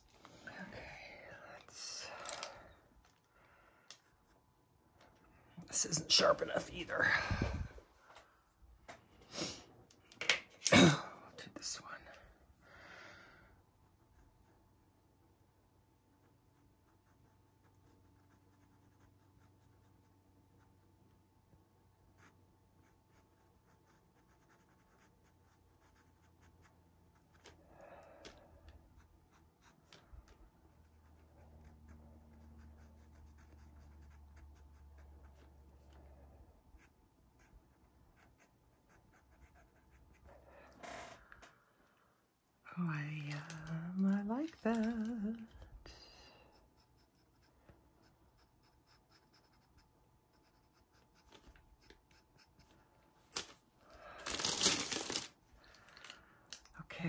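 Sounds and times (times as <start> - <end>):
pencil scratching on paper: 13.7 - 21.0, 22.0 - 27.6, 28.2 - 40.4, 46.4 - 52.9.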